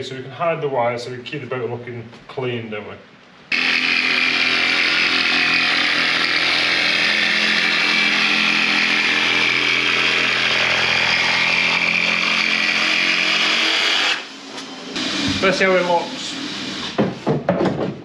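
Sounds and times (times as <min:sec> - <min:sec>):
jigsaw cutting a board: 0:03.5 - 0:14.3.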